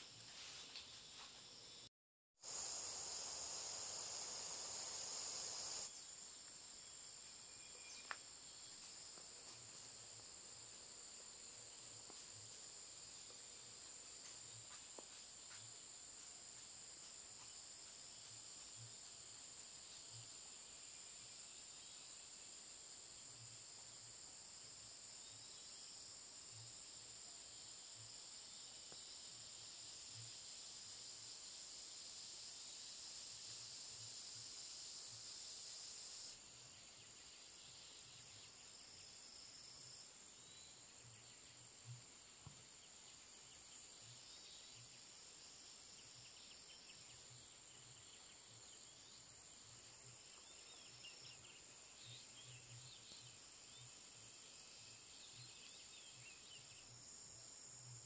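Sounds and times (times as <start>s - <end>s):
insects chorus: 0.0s - 58.0s
hiss: 2.4s - 6.7s, 8.1s - 40.4s.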